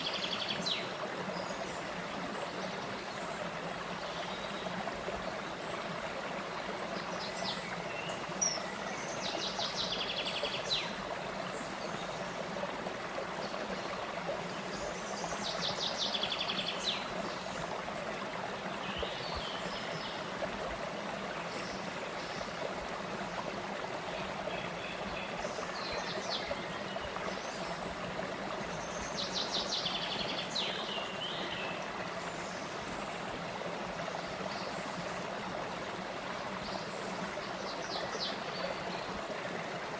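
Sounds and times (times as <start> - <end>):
stream running over rocks: 0.0 - 39.9.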